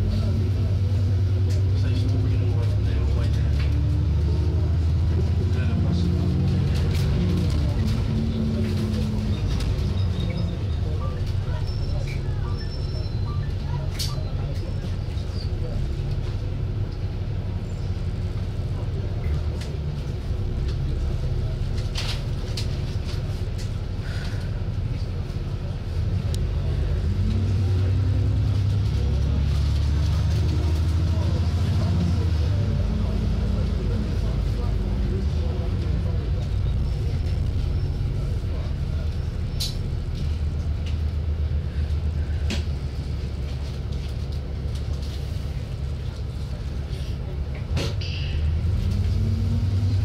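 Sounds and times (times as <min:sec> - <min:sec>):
bus engine and road rumble: 0:00.0 - 0:50.0
brief squeak: 0:11.6 - 0:15.5.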